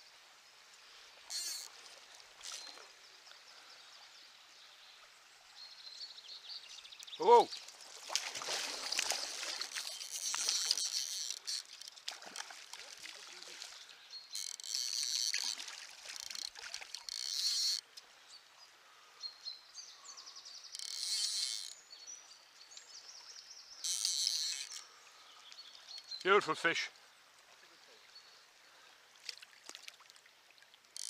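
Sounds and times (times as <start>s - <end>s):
faint splashing water: 0.0s - 31.0s
fly reel ratchet buzzing: 1.3s - 1.7s, 9.7s - 11.8s, 14.4s - 15.6s, 16.2s - 17.8s, 20.8s - 21.8s, 23.8s - 24.9s.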